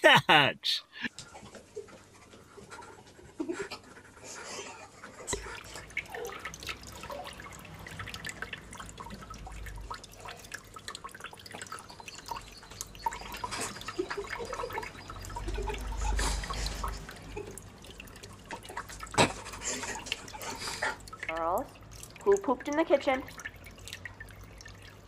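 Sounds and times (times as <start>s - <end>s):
water trickling and dripping: 1.0s - 25.0s.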